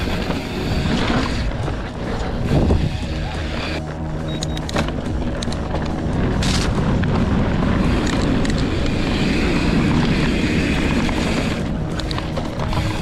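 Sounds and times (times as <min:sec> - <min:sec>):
wind buffeting microphone: 0:00.0 - 0:04.2
bike tyres rolling on dirt: 0:00.0 - 0:13.0.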